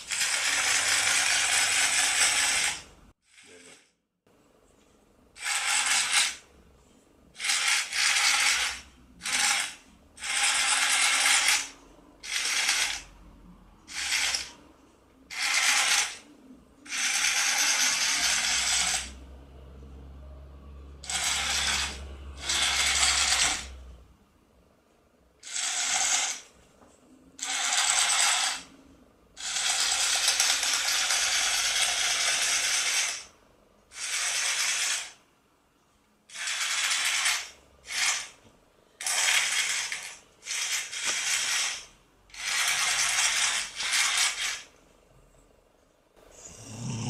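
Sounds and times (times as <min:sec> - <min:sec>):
toy motor whirring: 0:00.0 - 0:03.9, 0:05.4 - 0:06.5, 0:07.4 - 0:13.2, 0:13.9 - 0:14.6, 0:15.3 - 0:19.2, 0:21.0 - 0:23.9, 0:25.4 - 0:26.6, 0:27.4 - 0:28.8, 0:29.4 - 0:35.2, 0:36.3 - 0:38.4, 0:39.0 - 0:44.8.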